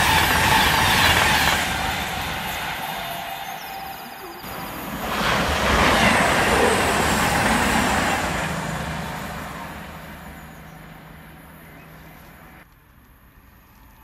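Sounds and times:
train passing at speed: 0:00.0 - 0:12.6.

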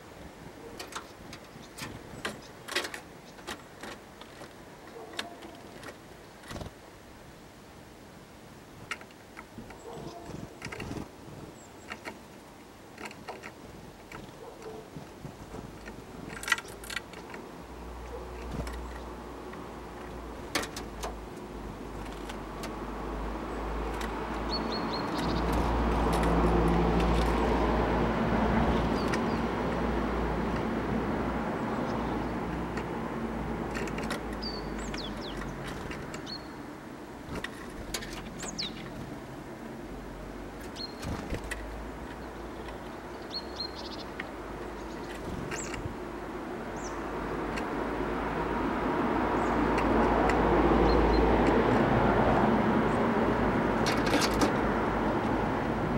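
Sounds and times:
birds chirping: 0:09.6 - 0:12.2, 0:22.6 - 0:26.5, 0:28.7 - 0:29.8, 0:31.4 - 0:39.7, 0:40.5 - 0:47.9, 0:49.2 - 0:51.7
passing vehicle rumble: 0:21.5 - 0:42.2, 0:44.4 - 0:55.9.

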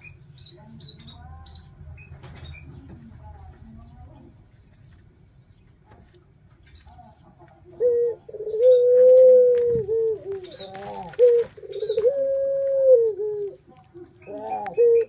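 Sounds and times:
dove cooing: 0:07.6 - 0:15.0.

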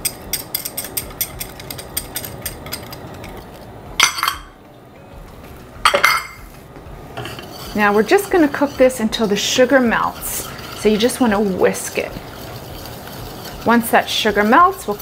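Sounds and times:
metal utensils clattering: 0:00.0 - 0:04.5, 0:05.8 - 0:06.4.

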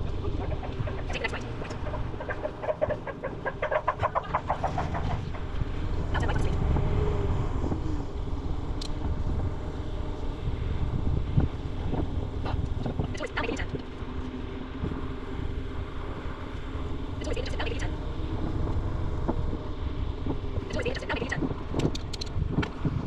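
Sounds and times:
bike rolling rumble: 0:00.0 - 0:17.2, 0:17.9 - 0:23.0
wind buffeting microphone: 0:00.0 - 0:23.0.

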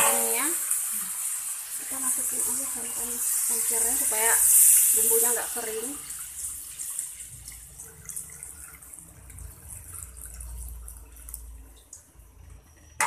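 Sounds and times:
liquid pouring into a metal pot: 0:03.2 - 0:13.0.

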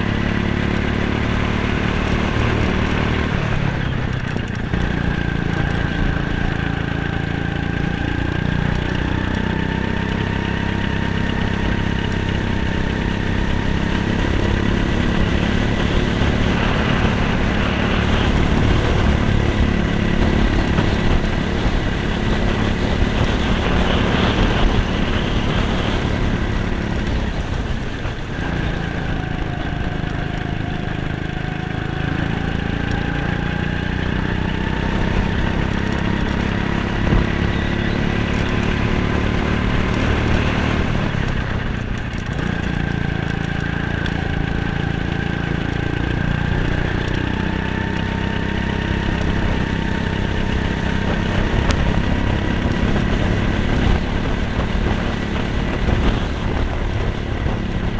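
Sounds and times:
go-kart engine running hard: 0:00.0 - 0:57.9.

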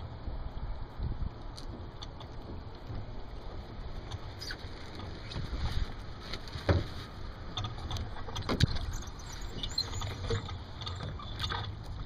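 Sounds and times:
wind and water rumble: 0:00.0 - 0:12.0.

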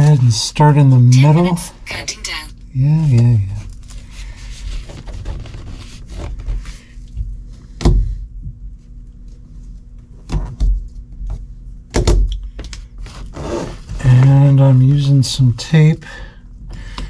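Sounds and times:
vinyl material rubbing and rustling: 0:03.0 - 0:07.6, 0:13.0 - 0:15.5.

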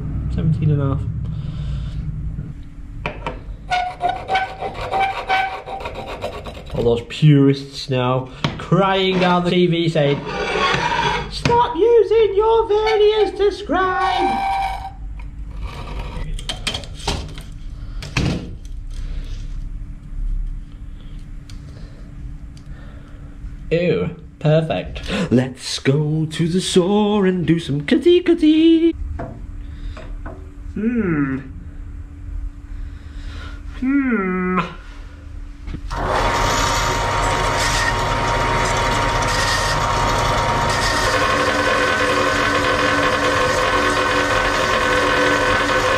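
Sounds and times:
faint steady hum: 0:00.0 - 0:37.0
bandsaw whining: 0:03.7 - 0:06.9, 0:08.8 - 0:11.7, 0:12.4 - 0:15.0, 0:35.9 - 0:45.9
caliper scratching on steel: 0:03.7 - 0:07.0, 0:10.2 - 0:11.4.

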